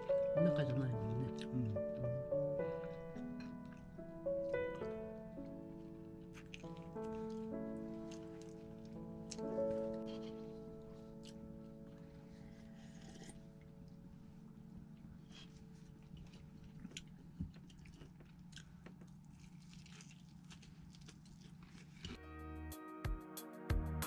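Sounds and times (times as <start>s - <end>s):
chewing and crunching fried chicken: 5.9s - 13.8s, 15.4s - 22.2s.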